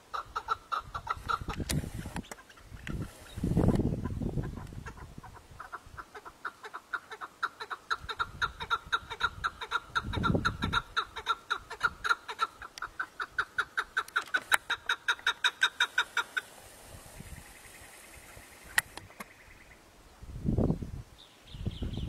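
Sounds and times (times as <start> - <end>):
partridges clucking: 7.9 - 16.6.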